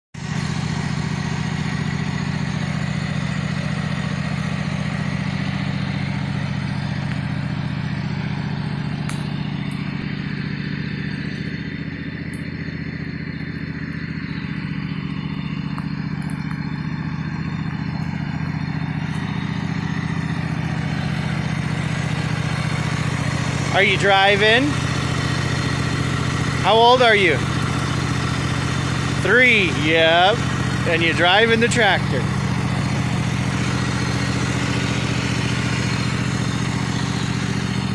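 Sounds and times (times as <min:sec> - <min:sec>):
lawn tractor engine running: 0:00.2 - 0:37.9.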